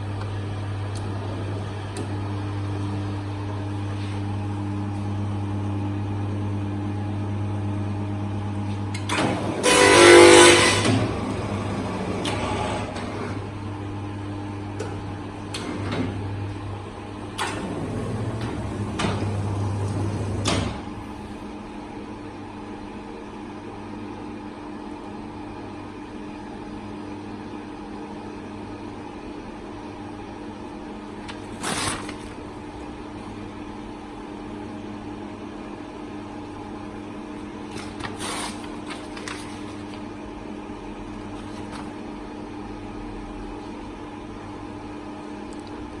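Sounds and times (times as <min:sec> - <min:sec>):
binding machine humming: 0:00.0 - 0:05.3, 0:07.4 - 0:21.6, 0:30.6 - 0:34.8, 0:36.3 - 0:46.0
paper rustling: 0:31.3 - 0:32.4, 0:37.7 - 0:40.1, 0:41.3 - 0:42.0.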